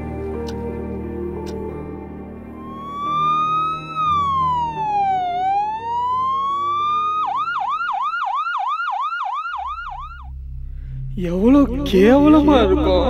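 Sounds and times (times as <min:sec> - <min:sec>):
soft background music: 0:00.0 - 0:08.2, 0:11.1 - 0:13.0
emergency vehicle siren: 0:02.5 - 0:10.4.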